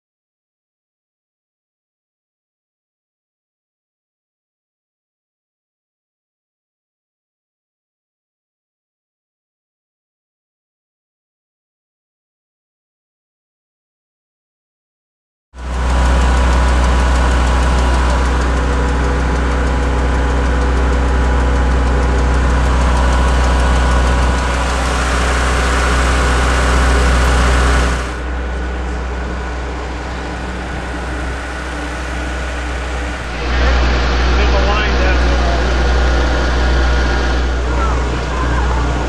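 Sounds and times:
engine idling deep hum: 15.6s - 39.0s.

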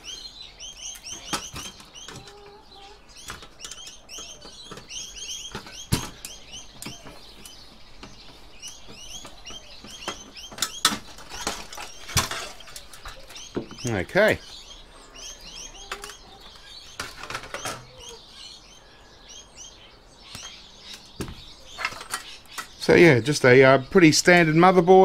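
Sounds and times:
birds chirping: 0.0s - 25.0s
hand tools clicking and knocking: 3.2s - 14.5s, 15.7s - 18.2s, 20.4s - 22.9s.

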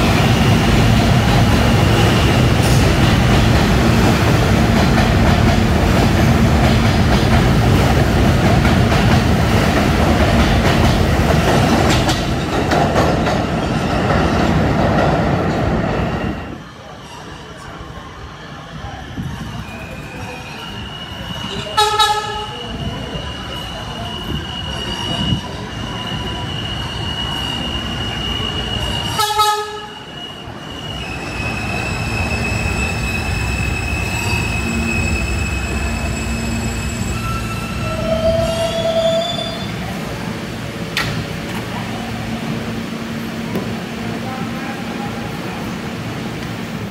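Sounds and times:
subway train whining: 0.0s - 46.9s
train horn blasts: 21.8s - 22.6s, 29.1s - 30.0s.

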